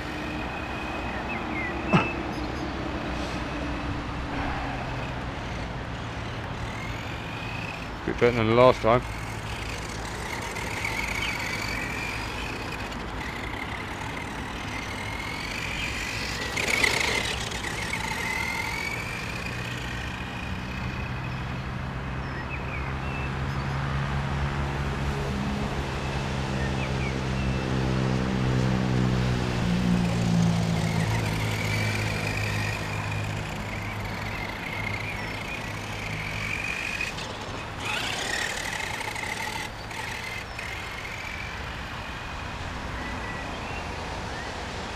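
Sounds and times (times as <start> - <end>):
electric motor and gears whining: 0.0 - 23.0, 25.8 - 43.8.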